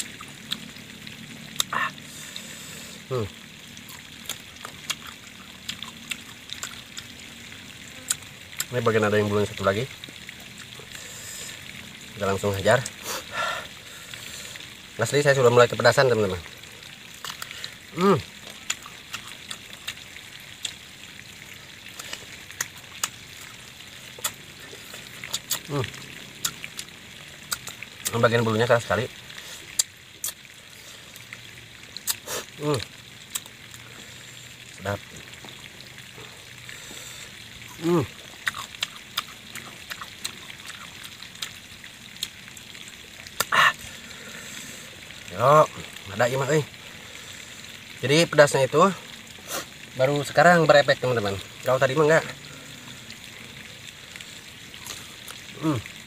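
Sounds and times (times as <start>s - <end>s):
crunchy fruit being chewed: 0.0s - 0.7s, 1.6s - 2.5s, 3.8s - 7.1s, 17.2s - 17.8s, 18.4s - 20.0s, 20.6s - 20.8s, 21.9s - 26.9s, 27.5s - 28.2s, 32.0s - 34.0s, 37.1s - 42.4s, 43.2s - 43.9s, 54.7s - 55.8s
hiss of breath drawn in: 49.4s - 49.7s.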